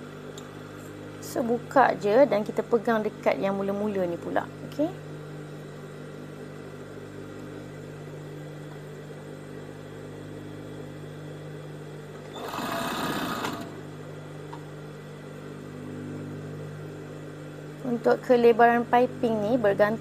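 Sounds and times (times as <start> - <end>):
sewing machine motor humming: 12.2 - 13.8
fast stitching burst: 12.4 - 13.7.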